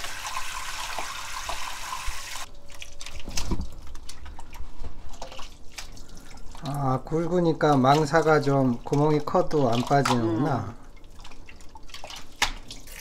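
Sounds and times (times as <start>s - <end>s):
water draining and dripping: 0.0s - 13.0s
water splashes: 2.7s - 13.0s.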